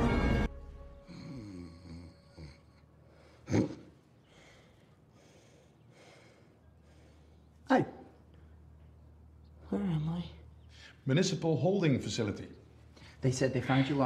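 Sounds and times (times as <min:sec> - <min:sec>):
music: 0:00.0 - 0:02.2
man groaning and breathing: 0:01.0 - 0:04.6.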